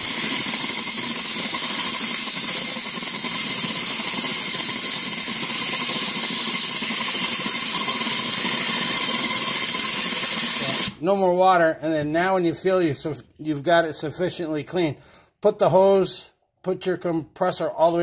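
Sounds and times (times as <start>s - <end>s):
compressed air hissing into bottle: 0.0s - 11.0s.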